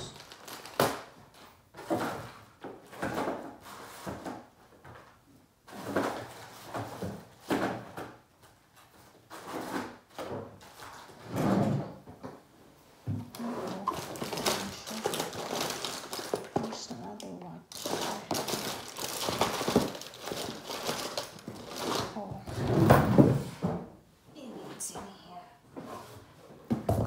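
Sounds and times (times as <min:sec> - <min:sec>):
plastic bags rustling: 0:00.0 - 0:04.4, 0:13.1 - 0:23.5.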